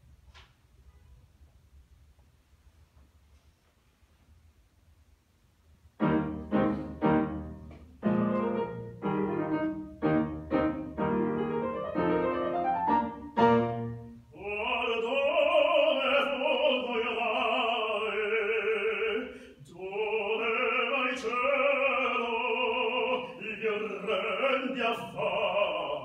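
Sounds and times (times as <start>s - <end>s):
grand piano chords: 6.0s - 17.0s
operatic baritone singing: 14.3s - 26.0s.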